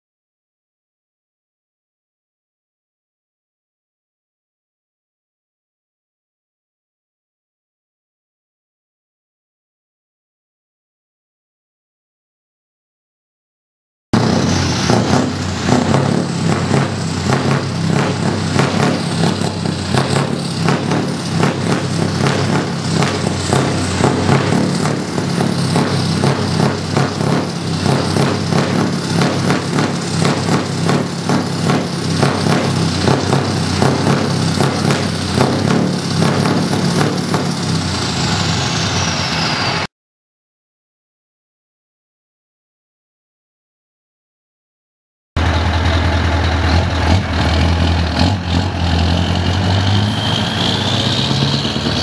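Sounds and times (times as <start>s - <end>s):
diesel truck engine revving: 14.2s - 39.9s, 45.4s - 52.0s
faint high whistle: 50.0s - 52.0s.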